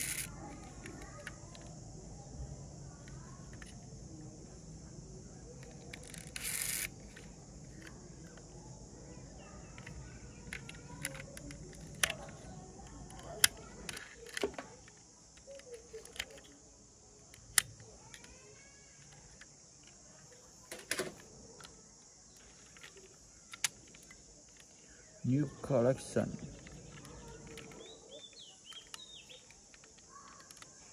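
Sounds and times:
toy car clicks and taps: 0.0s - 1.8s, 5.6s - 8.4s, 9.7s - 16.6s, 17.3s - 20.0s, 22.4s - 24.8s, 26.4s - 30.9s
insects chirring: 0.0s - 30.9s.

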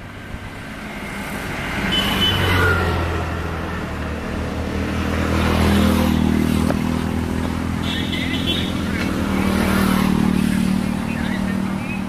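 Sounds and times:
vehicles passing on highway: 0.0s - 12.0s.

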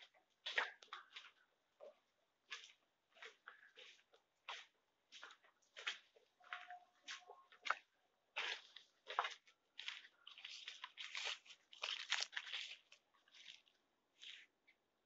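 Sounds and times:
footsteps crunching through leaf litter: 8.4s - 14.5s.

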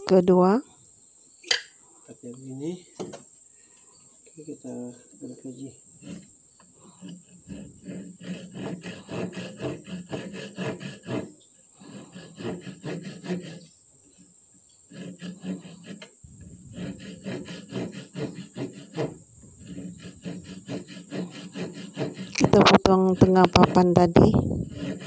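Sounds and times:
hand saw cutting wood: 6.0s - 14.3s, 14.9s - 25.0s.

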